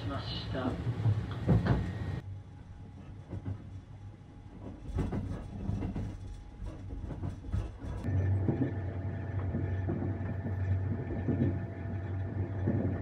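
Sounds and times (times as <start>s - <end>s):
train interior rumble: 0.0s - 13.0s
soft knocks from train wheels: 0.8s - 2.2s, 3.0s - 11.7s.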